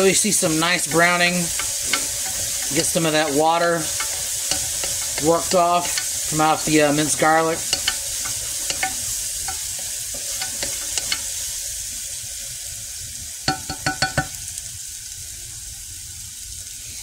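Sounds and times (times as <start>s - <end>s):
wooden spoon stirring: 0.0s - 11.6s
garlic sizzling in oil: 0.0s - 17.0s.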